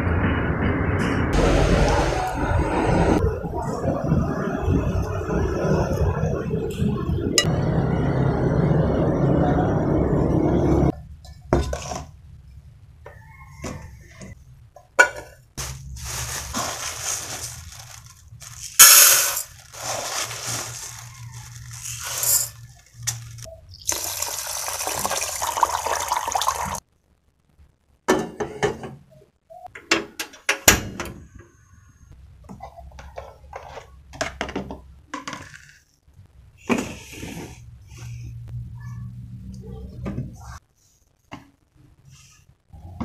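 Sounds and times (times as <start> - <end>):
water pouring into metal pot: 23.9 - 26.8.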